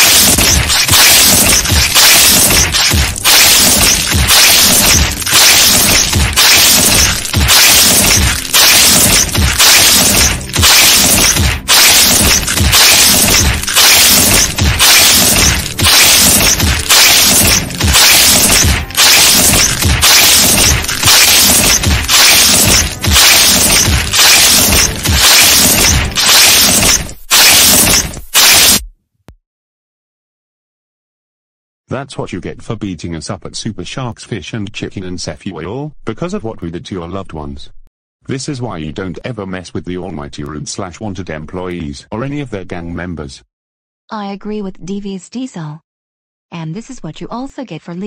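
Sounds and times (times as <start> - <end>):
cartoon hits and smashes: 0.0 - 28.9.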